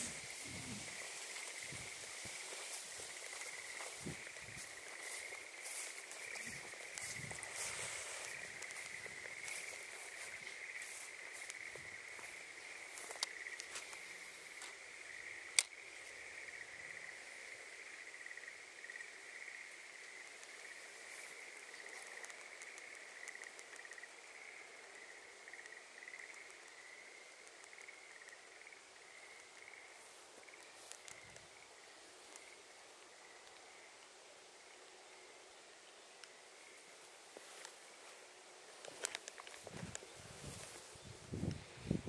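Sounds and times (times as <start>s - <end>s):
footsteps rustling through grass: 0.0s - 14.8s, 30.0s - 31.2s, 36.7s - 42.0s
insects trilling: 0.0s - 42.0s
sharp clicks: 15.5s - 15.8s.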